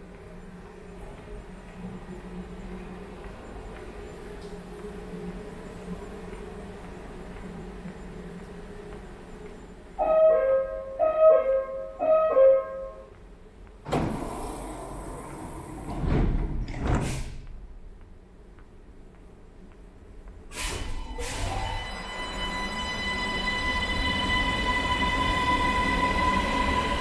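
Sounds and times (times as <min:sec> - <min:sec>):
train doors sliding shut: 0:13.8 - 0:17.4, 0:20.5 - 0:22.2
train motor whine: 0:20.6 - 0:27.0.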